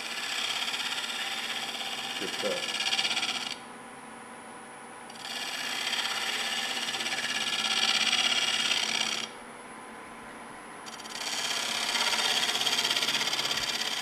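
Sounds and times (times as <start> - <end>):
wood lathe cutting: 0.0 - 3.6, 5.1 - 9.3, 10.9 - 14.0.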